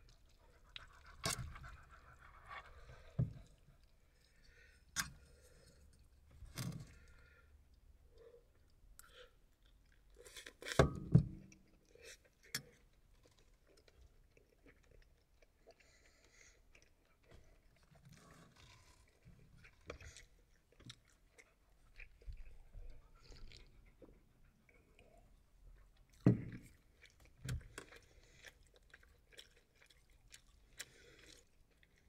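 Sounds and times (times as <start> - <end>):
person chewing: 6.8 - 10.8, 11.4 - 32.0.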